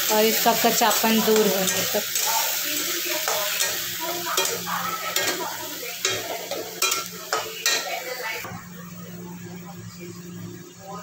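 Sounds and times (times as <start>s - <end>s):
paste sizzling in hot oil: 0.0s - 8.5s.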